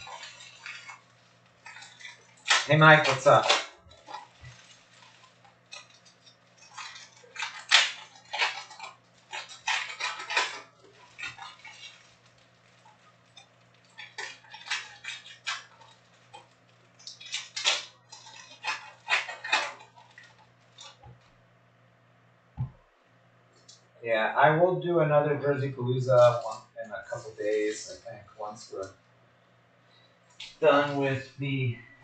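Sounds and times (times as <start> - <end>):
foil wrappers crinkling and tearing: 0.0 - 21.3, 26.2 - 28.0, 30.3 - 31.2.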